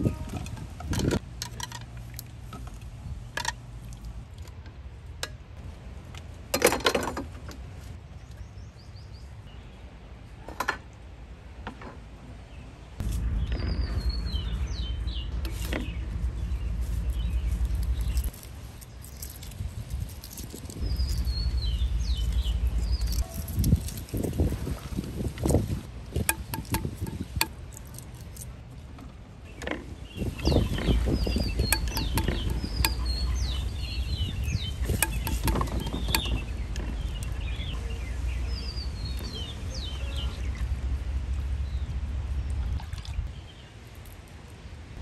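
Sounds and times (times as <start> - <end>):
low steady rumble: 0.0 - 45.0
birds chirping: 12.5 - 19.4, 20.3 - 25.6, 29.4 - 40.8
rattle: 17.2 - 24.5, 26.2 - 28.5, 34.5 - 37.1
sharp knocks and clatters: 26.2 - 27.6, 30.5 - 33.1, 34.8 - 37.0.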